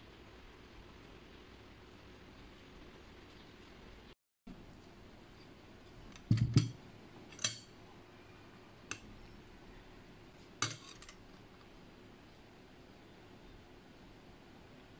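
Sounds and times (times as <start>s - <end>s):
utensils clinking on glass bowl: 10.6s - 11.2s.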